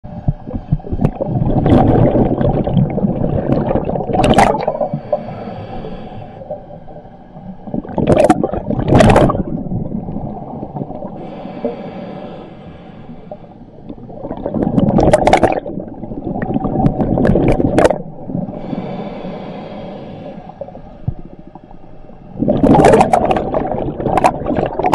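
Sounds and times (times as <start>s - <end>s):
exhaled bubbles underwater: 0.1s - 11.8s, 13.2s - 19.0s, 20.0s - 24.9s
regulator inhale hiss: 4.6s - 7.7s, 11.1s - 13.9s, 18.4s - 22.4s.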